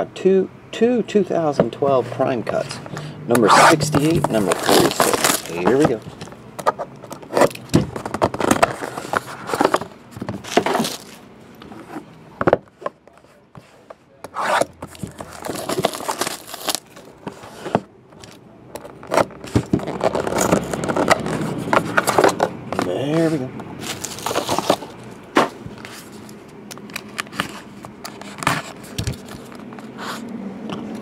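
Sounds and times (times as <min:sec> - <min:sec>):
fingers scraping over box: 0:02.5 - 0:09.8, 0:12.8 - 0:17.9
blade slitting shrink-wrap: 0:03.4 - 0:05.8, 0:14.4 - 0:17.0.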